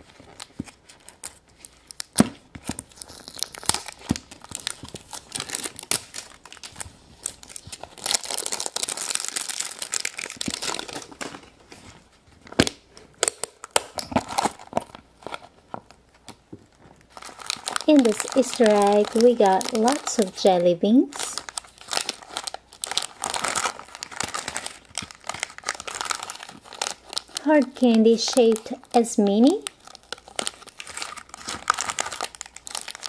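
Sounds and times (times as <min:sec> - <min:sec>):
plastic wrapping crinkling and tearing: 0:00.0 - 0:33.0
cellophane bag crinkling: 0:02.8 - 0:12.0, 0:13.1 - 0:33.0.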